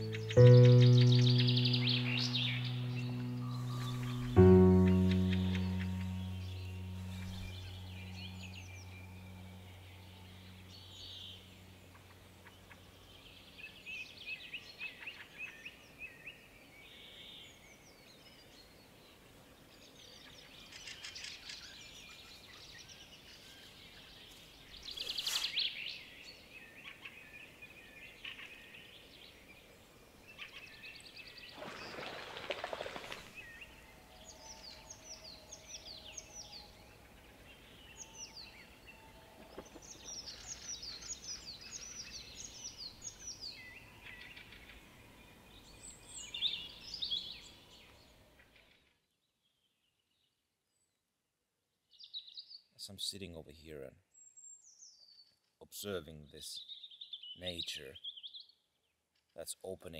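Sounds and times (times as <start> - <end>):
birds chirping: 0.0 - 14.2.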